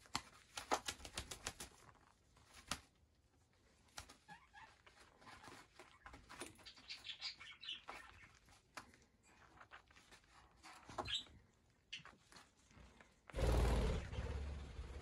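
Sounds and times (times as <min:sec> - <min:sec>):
wings flapping: 0:00.5 - 0:01.8, 0:13.4 - 0:15.0.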